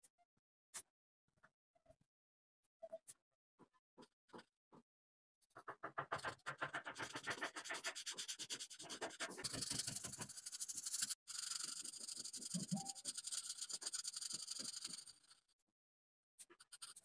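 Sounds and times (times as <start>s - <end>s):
marker scratching on paper: 5.5s - 15.4s, 16.4s - 17.0s.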